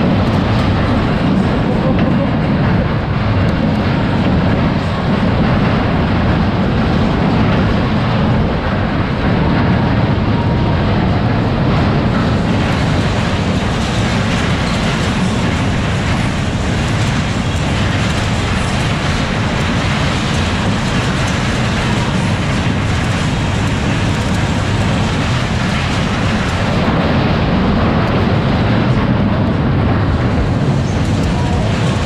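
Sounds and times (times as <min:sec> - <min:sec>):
fairground ride cars rumbling: 0:00.0 - 0:32.0.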